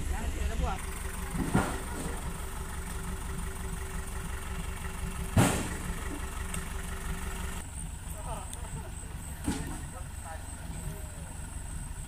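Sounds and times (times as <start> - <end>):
engine idling: 0.0 - 12.0
heavy thump: 1.3 - 2.2, 5.3 - 5.8.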